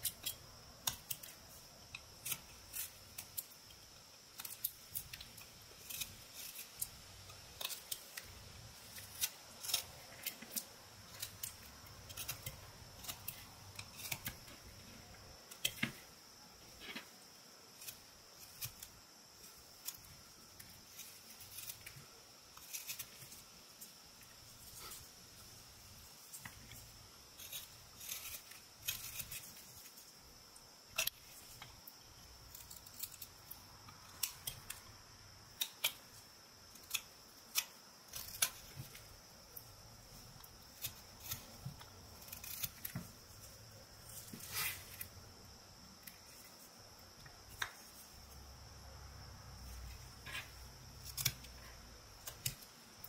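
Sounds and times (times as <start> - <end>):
knife slicing wood shavings: 4.3 - 16.1, 26.4 - 30.0, 40.1 - 45.2.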